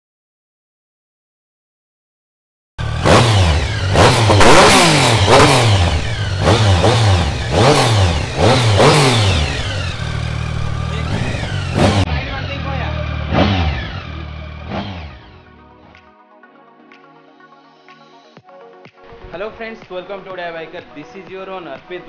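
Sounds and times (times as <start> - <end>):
motorcycle engine revving: 2.8 - 16.0.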